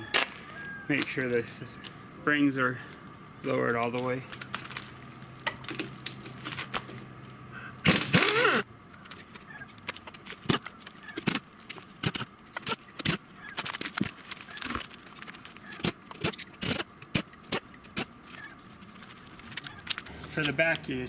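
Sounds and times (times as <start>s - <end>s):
pneumatic impact wrench: 7.8s - 8.7s, 15.8s - 18.1s.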